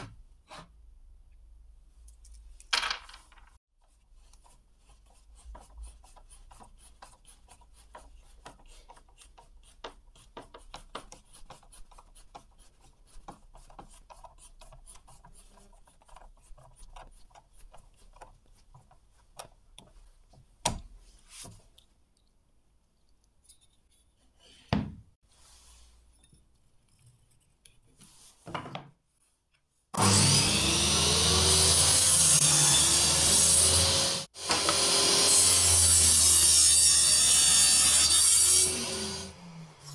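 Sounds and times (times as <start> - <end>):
table saw cutting wood: 30.0 - 39.9.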